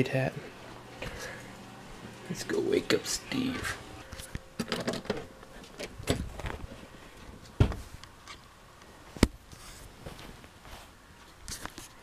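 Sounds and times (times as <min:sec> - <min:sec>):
rustling and small knocks: 0:04.2 - 0:08.5, 0:09.1 - 0:12.0.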